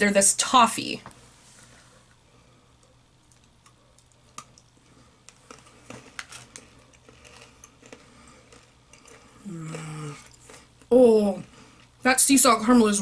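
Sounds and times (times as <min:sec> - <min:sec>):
hard candy crunching: 0:03.2 - 0:12.1.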